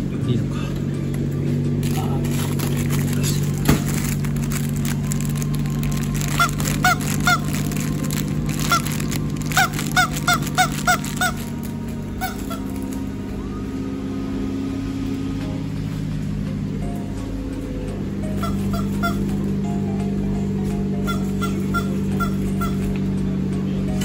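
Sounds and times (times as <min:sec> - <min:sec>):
steady low hum: 0:00.0 - 0:24.0
short honking calls: 0:05.9 - 0:13.2, 0:18.2 - 0:19.6, 0:20.9 - 0:23.1.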